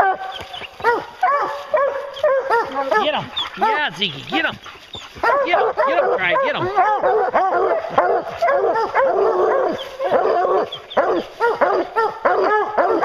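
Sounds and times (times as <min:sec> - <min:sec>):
hounds barking and baying: 0:00.0 - 0:13.0.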